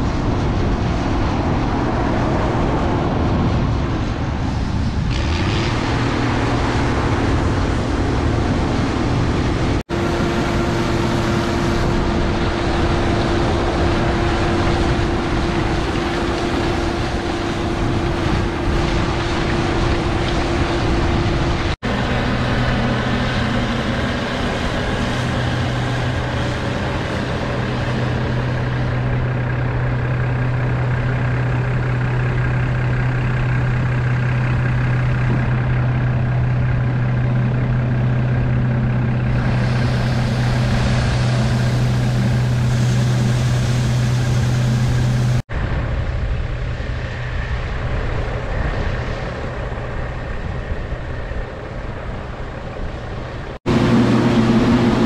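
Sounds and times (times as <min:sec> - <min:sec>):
combine harvester diesel drone: 0:00.0 - 0:55.0
threshing machinery hum: 0:00.0 - 0:55.0.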